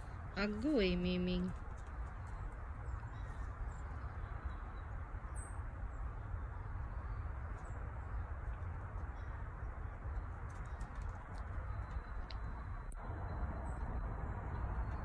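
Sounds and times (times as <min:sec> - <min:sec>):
outdoor background rush: 0:00.0 - 0:15.0
low rumble: 0:11.6 - 0:15.0.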